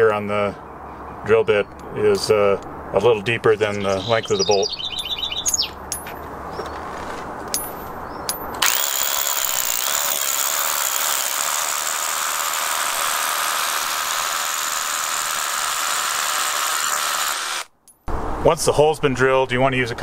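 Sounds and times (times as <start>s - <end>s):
rotary hammer drilling into rock: 8.6s - 17.7s.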